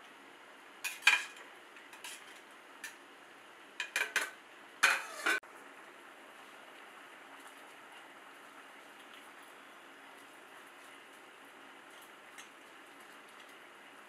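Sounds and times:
spatula scraping metal pot: 4.8s - 5.4s.

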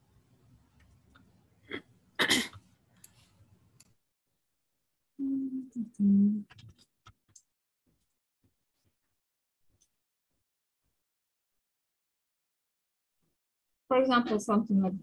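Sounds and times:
person sneezing: 1.7s - 2.6s.

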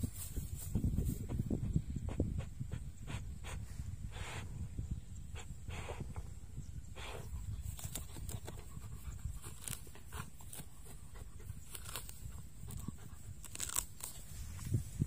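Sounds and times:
dog sniffing and rustling in grass: 0.0s - 4.5s, 6.9s - 15.0s.

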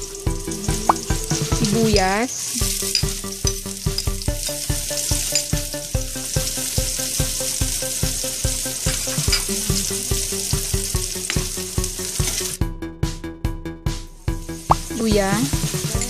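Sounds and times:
onion and garlic sizzling in oil: 0.0s - 12.6s, 14.4s - 16.0s
background music with steady beat: 0.0s - 16.0s
ladle stirring in wok: 2.4s - 12.6s.

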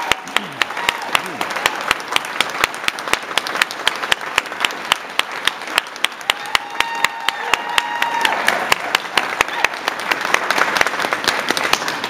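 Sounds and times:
person cheering: 0.0s - 1.6s, 6.2s - 9.9s
audience applauding: 0.0s - 12.0s.

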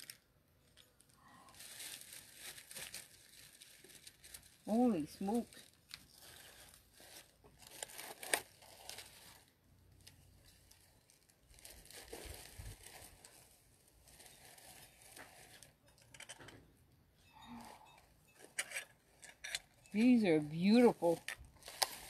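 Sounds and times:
tissue paper rustling: 1.0s - 15.8s, 20.0s - 22.0s.

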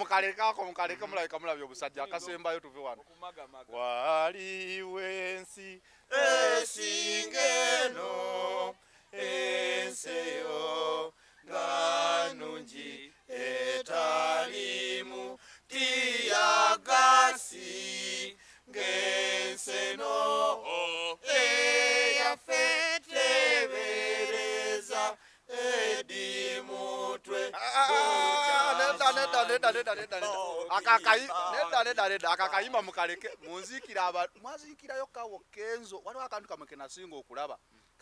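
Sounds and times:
men singing a cappella: 3.7s - 32.0s.

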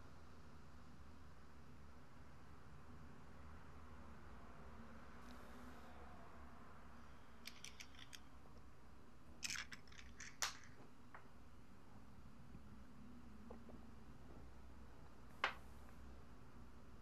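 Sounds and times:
low room hum: 0.0s - 17.0s
blister pack plastic clicks: 9.4s - 10.8s.

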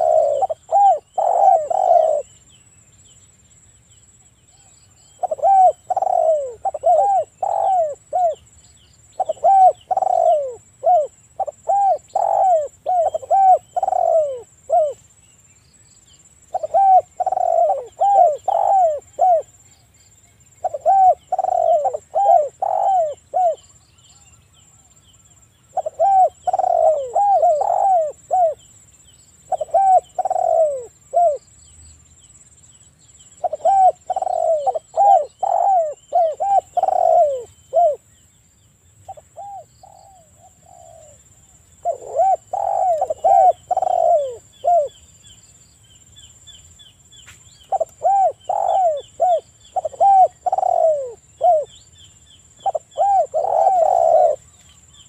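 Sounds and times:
dove cooing: 0.0s - 2.3s, 5.1s - 8.4s, 9.2s - 15.0s, 16.5s - 19.6s, 20.6s - 28.6s, 29.5s - 31.4s, 33.4s - 38.0s, 39.1s - 45.0s, 47.7s - 51.8s, 52.6s - 54.6s.

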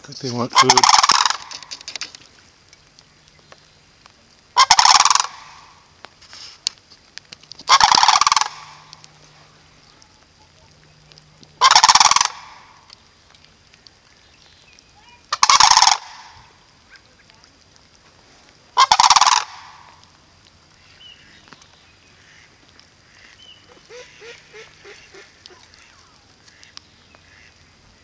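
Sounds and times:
cranes rattling calls: 0.2s - 2.4s, 4.5s - 5.7s, 7.5s - 9.6s, 11.6s - 13.0s, 15.0s - 17.3s, 18.7s - 28.0s.

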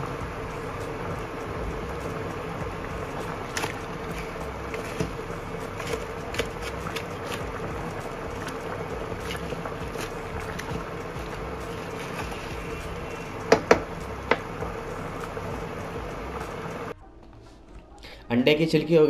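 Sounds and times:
faint cooktop hum: 0.0s - 17.0s
water boiling in a pan: 0.0s - 17.0s.

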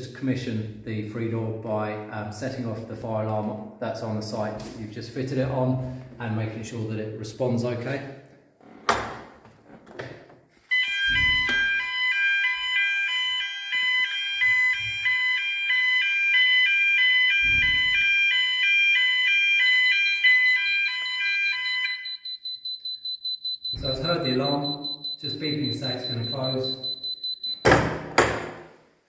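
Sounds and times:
fire alarm sounder: 10.7s - 27.8s
high-pitched fast beeping: 20.6s - 27.7s.

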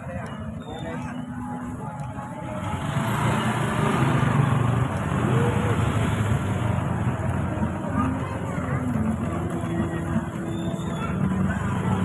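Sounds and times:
crowd hubbub: 0.0s - 12.0s
small motorcycle engine passing: 2.6s - 12.0s.

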